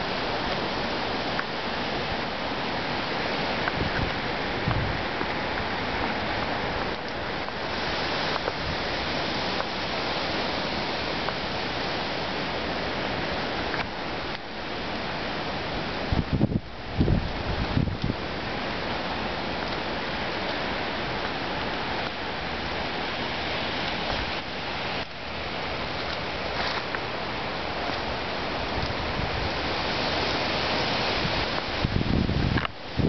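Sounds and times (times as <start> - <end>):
strong wind rushing through trees: 0.0 - 33.0
gust buffeting microphone: 3.6 - 10.2, 16.0 - 18.4, 23.6 - 33.0.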